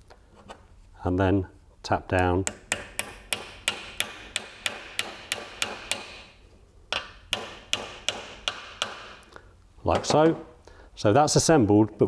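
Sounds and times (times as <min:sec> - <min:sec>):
hammer tapping metal: 0:02.2 - 0:09.3.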